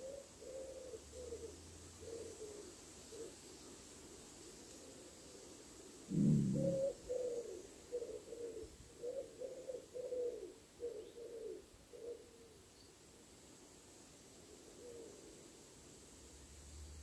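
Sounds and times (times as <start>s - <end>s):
pigeon cooing: 0.0s - 3.4s, 6.1s - 12.6s.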